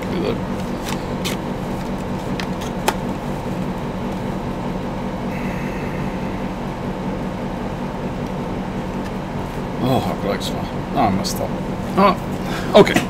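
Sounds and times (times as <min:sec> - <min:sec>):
floppy discs clicking: 0:00.0 - 0:04.3
machine hum: 0:00.0 - 0:13.0.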